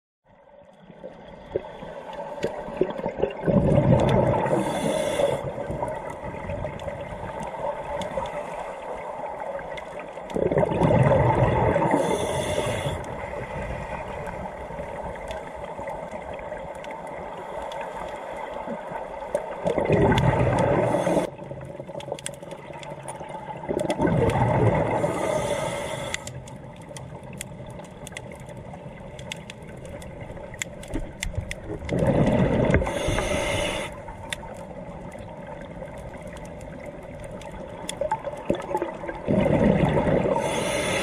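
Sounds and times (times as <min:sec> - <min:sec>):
underwater bubbling: 0:00.3 - 0:41.0
faint clicks: 0:04.0 - 0:10.5, 0:11.9 - 0:39.2
steady hiss: 0:04.4 - 0:05.8, 0:11.9 - 0:19.2, 0:25.0 - 0:26.5, 0:32.7 - 0:34.3, 0:40.3 - 0:41.0.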